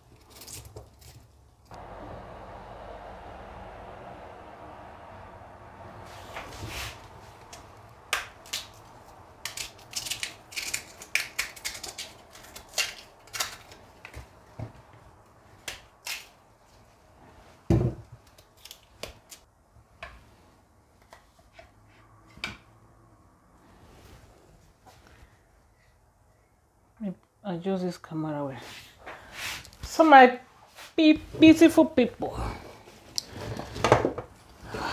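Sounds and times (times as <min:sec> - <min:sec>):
knife scraping and cutting peel: 0:08.2 - 0:13.8.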